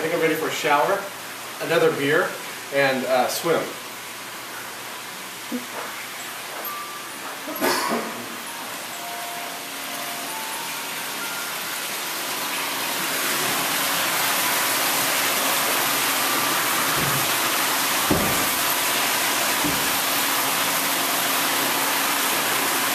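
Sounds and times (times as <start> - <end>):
running water rushing: 8.0 - 22.9.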